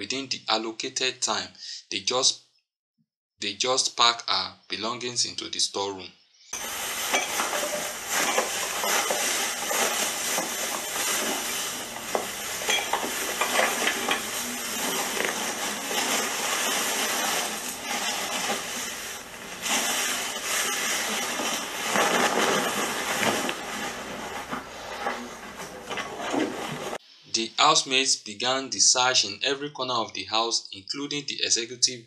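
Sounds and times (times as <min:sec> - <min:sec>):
plastic bin bags rustling: 0:06.6 - 0:27.0.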